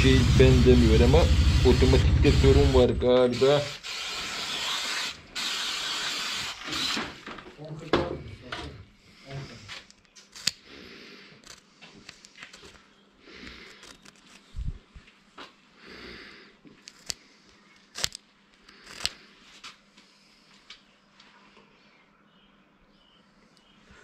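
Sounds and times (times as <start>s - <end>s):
small metal parts clicking: 9.9s - 10.6s.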